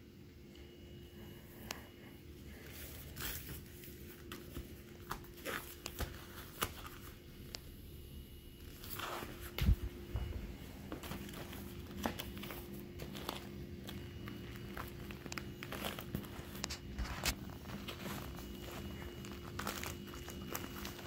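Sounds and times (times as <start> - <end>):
faint steady hum: 0.0 - 21.0
vinyl inflatables crinkling: 1.2 - 7.8, 8.4 - 21.0
footsteps: 9.0 - 19.8.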